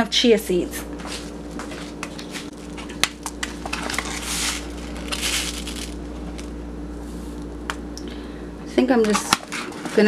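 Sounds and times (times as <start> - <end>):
faint steady hum: 0.0 - 10.0
seeds pouring into a bowl: 3.7 - 6.5.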